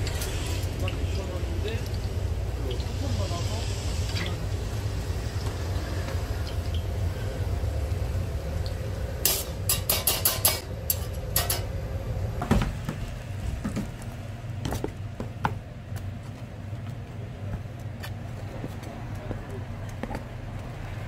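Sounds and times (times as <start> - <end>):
low hum: 0.0 - 18.0
metal tools clinking on wire rack: 9.2 - 11.7.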